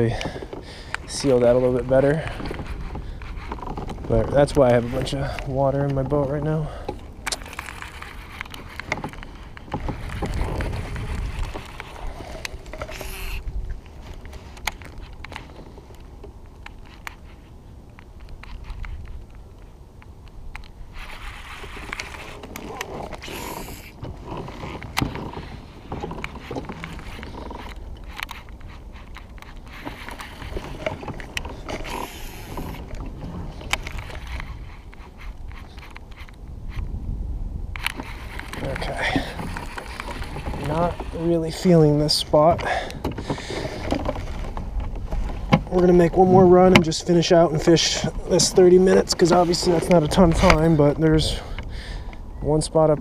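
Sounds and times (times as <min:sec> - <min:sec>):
clicks and knocks on hull: 0:02.2 - 0:17.4, 0:21.7 - 0:36.4, 0:37.8 - 0:52.2
water noise: 0:20.7 - 0:37.0, 0:37.6 - 0:53.0.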